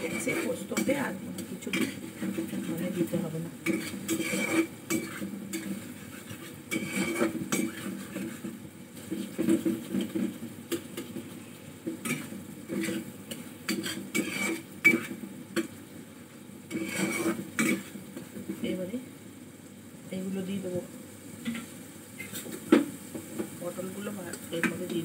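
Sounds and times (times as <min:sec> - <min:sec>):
metal spatula scraping metal pan: 0:00.0 - 0:10.2, 0:12.0 - 0:15.7, 0:16.7 - 0:18.0.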